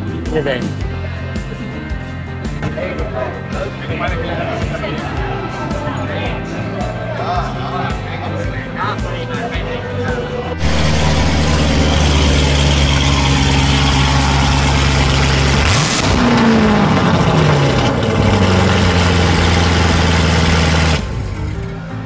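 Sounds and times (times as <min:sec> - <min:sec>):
car engine idling and revving: 0:10.6 - 0:21.8.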